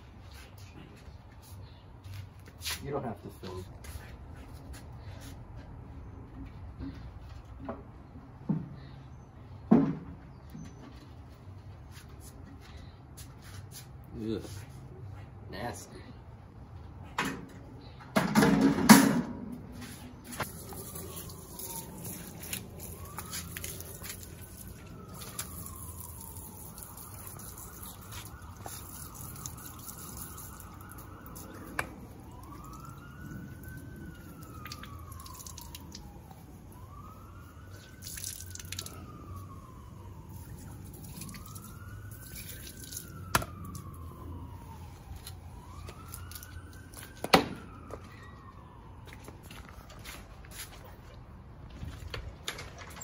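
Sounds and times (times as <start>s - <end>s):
siren wailing: 19.3s - 51.8s
water splashing on concrete: 20.3s - 48.0s.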